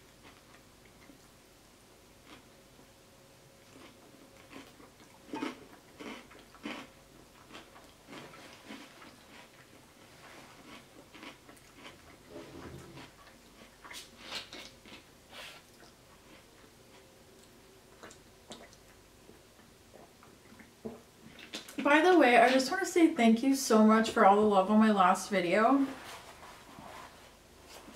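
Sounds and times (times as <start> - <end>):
wet chewing mouth sounds: 3.6 - 21.8.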